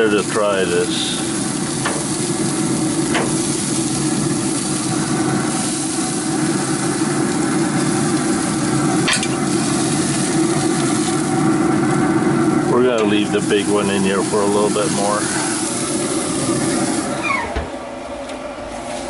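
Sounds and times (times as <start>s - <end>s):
ribs sizzling on a grill: 0.0s - 17.2s
grill hum: 0.0s - 19.0s.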